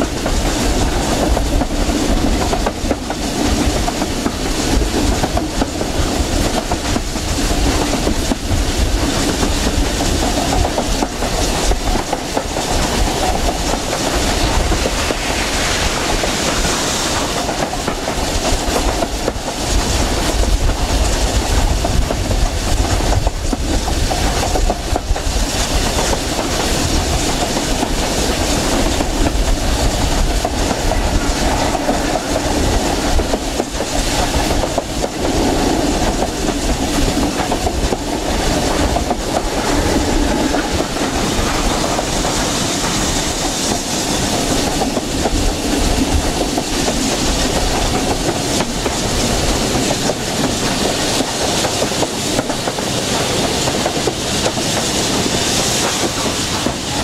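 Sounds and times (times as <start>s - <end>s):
train rumbling: 0.0s - 57.0s
wheels clacking over rail joints: 0.0s - 57.0s.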